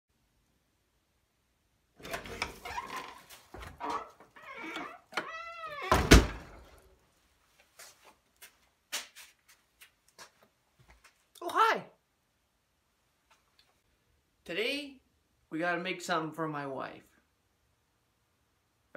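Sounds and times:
door hinge squeal: 0:02.0 - 0:06.4
door closing thud: 0:02.0 - 0:06.8
rustling and knocks on wooden door: 0:05.9 - 0:06.7.

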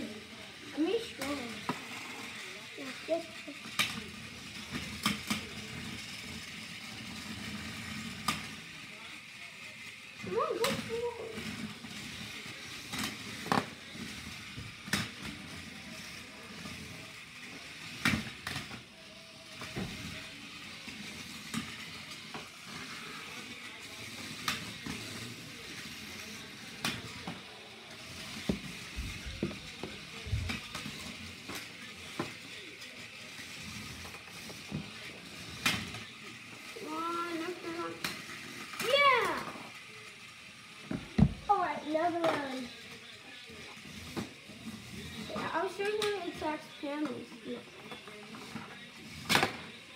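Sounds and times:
toy robot motors whirring: 0:00.0 - 0:49.9.

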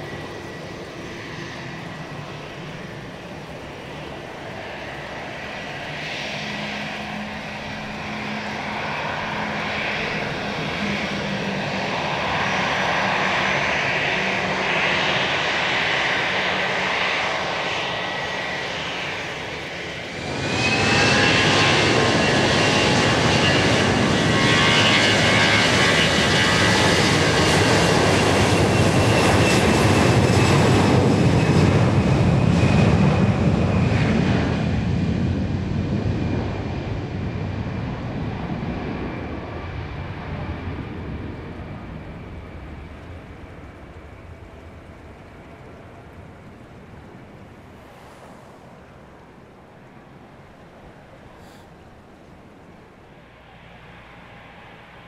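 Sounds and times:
airplane engines whining: 0:00.0 - 0:55.0.

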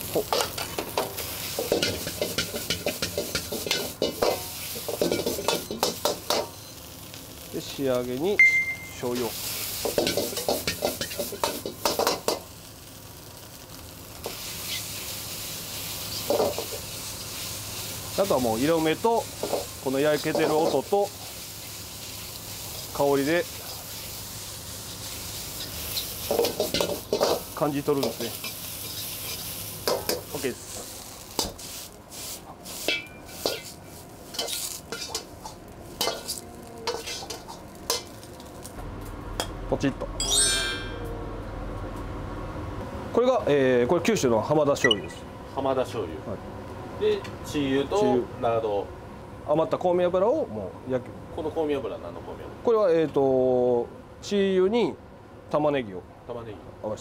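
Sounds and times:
fried rice sizzling in a wok: 0:00.0 - 0:38.8
metal ladle scraping a wok: 0:32.6 - 0:38.1.

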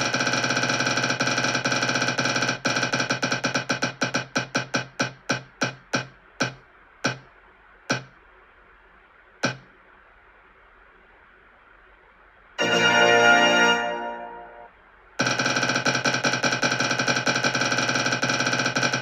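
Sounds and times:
electronic wheel ticks: 0:00.0 - 0:07.3, 0:09.4 - 0:09.7, 0:15.2 - 0:19.0.

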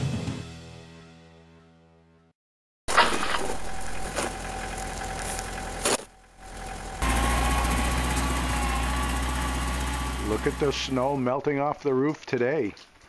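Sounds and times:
snow shovel scraping snow: 0:02.9 - 0:06.1
tractor engine running: 0:02.9 - 0:11.5.

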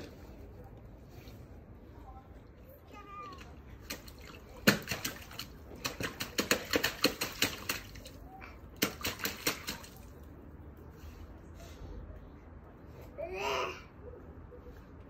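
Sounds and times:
boots splashing in a puddle: 0:03.5 - 0:10.2.

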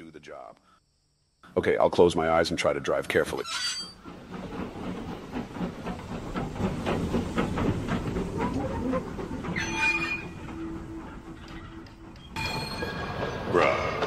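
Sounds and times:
steam engine chuffing: 0:03.2 - 0:14.0.

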